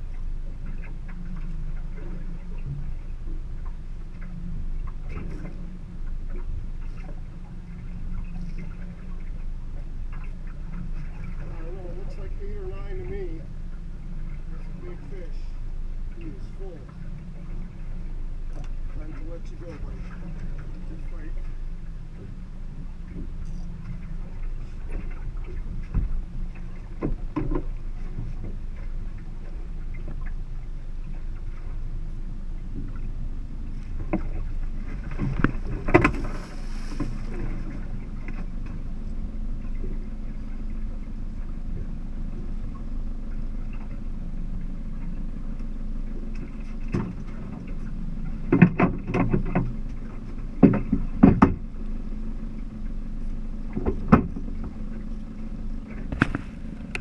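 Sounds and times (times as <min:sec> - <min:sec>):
boat engine rumble: 0:00.0 - 0:57.0
knocks on boat hull: 0:50.6 - 0:51.6.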